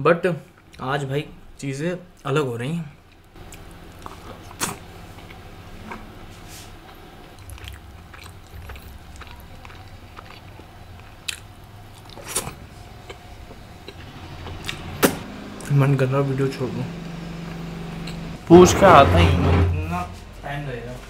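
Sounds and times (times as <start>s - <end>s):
man biting and chewing bread: 3.1s - 15.6s.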